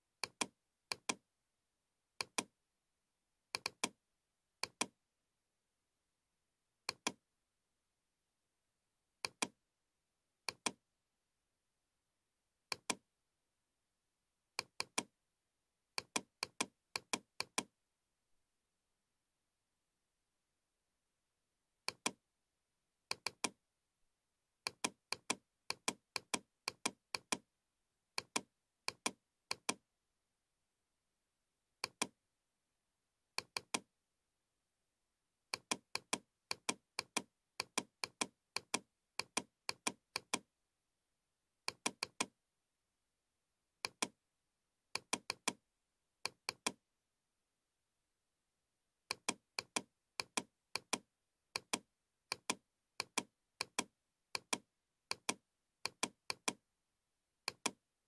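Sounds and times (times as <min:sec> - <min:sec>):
computer mouse button clicking: 0:00.2 - 0:01.2, 0:02.2 - 0:02.5, 0:03.5 - 0:04.0, 0:04.6 - 0:04.9, 0:06.9 - 0:07.2, 0:09.2 - 0:09.6, 0:10.5 - 0:10.8, 0:12.7 - 0:13.0, 0:14.6 - 0:15.1, 0:16.0 - 0:17.7, 0:21.9 - 0:22.2, 0:24.6 - 0:27.4, 0:28.2 - 0:29.8, 0:31.8 - 0:32.1, 0:33.4 - 0:33.8, 0:35.6 - 0:40.4, 0:41.7 - 0:42.3, 0:43.8 - 0:44.1, 0:45.0 - 0:45.6, 0:46.3 - 0:46.8, 0:49.1 - 0:56.6, 0:57.5 - 0:57.8.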